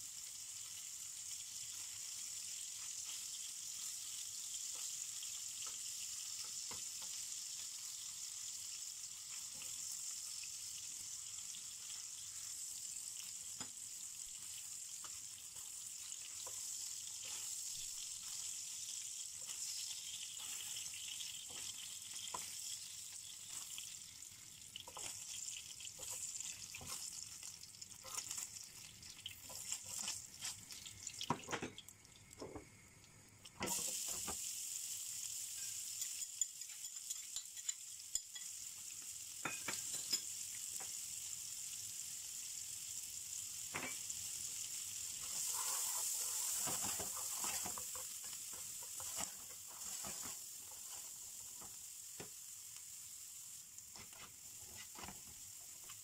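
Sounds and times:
oil sizzling in a frying pan: 0.0 - 56.0
tongs tapping a pan: 35.6 - 38.6, 39.4 - 41.0.

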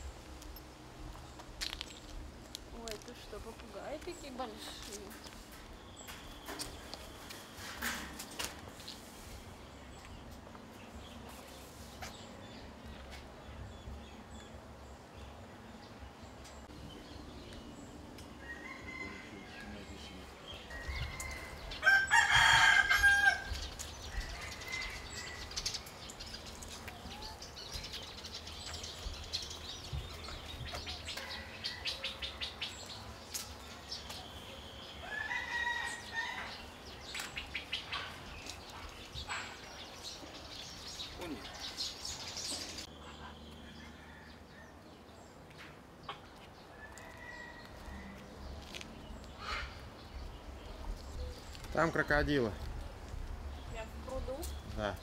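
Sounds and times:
roosters crowing: 18.3 - 26.0, 34.6 - 37.1, 41.5 - 45.1, 46.6 - 48.7.

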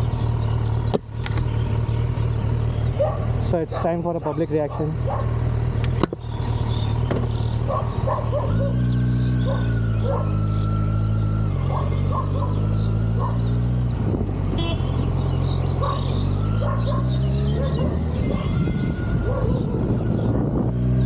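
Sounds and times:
motorcycle engine revving: 0.0 - 21.0
dog barking: 3.0 - 5.4, 7.7 - 8.8, 9.4 - 10.3, 11.7 - 12.6, 13.2 - 13.5, 15.8 - 18.6, 19.2 - 20.5.

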